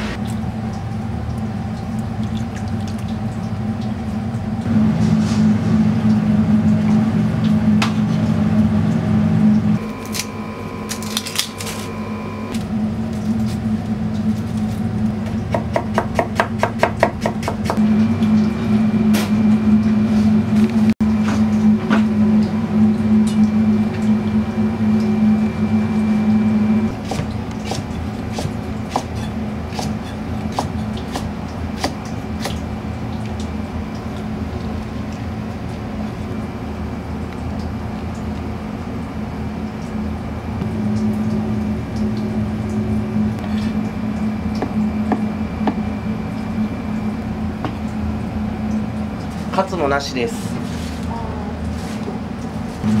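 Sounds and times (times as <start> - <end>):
kitchen machinery hum: 0.0 - 53.0
knife chopping on plastic board: 27.0 - 29.1.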